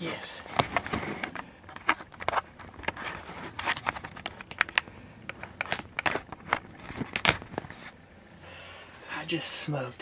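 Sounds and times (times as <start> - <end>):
camera handling clicks and knocks: 0.5 - 3.0.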